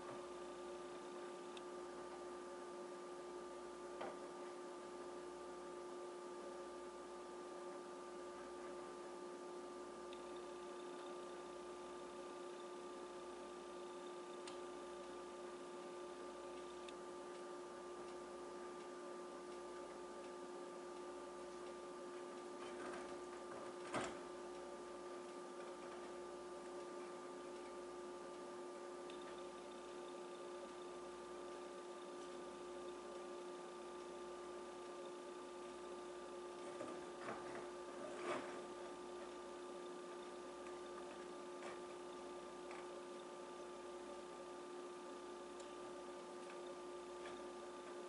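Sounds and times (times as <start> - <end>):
faint electrical hum: 0.0 - 48.0
light ticking: 10.1 - 11.5, 29.0 - 33.4.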